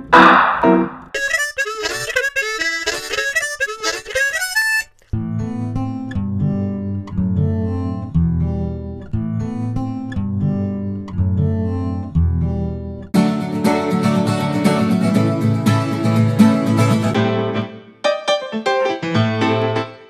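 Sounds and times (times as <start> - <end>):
acoustic guitar strumming chords: 0.0 - 2.2, 13.2 - 18.2.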